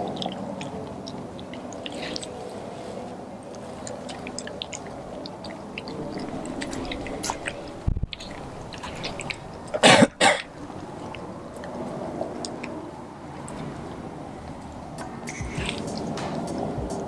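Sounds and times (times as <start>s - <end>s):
dog chewing wet crunches: 0.0s - 17.0s
dog coughing: 9.7s - 10.6s.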